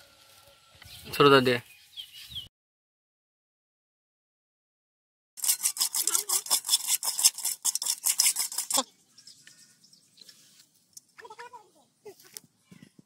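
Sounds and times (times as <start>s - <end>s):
hands rubbing fish in a bowl: 5.4s - 8.9s.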